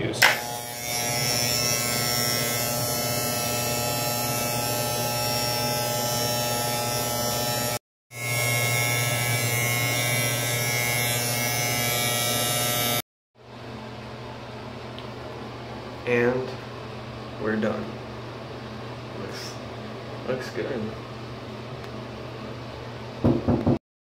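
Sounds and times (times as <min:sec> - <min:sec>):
electric trimmer buzzing: 0:00.1 - 0:13.0.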